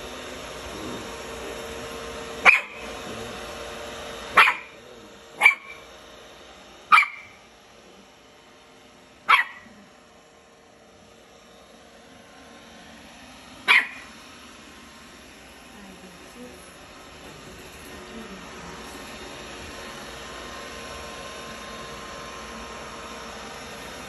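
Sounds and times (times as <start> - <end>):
puppy barking sharply: 2.4 - 2.8, 4.3 - 4.8, 5.4 - 5.8, 6.9 - 7.4, 9.3 - 9.7, 13.7 - 14.1.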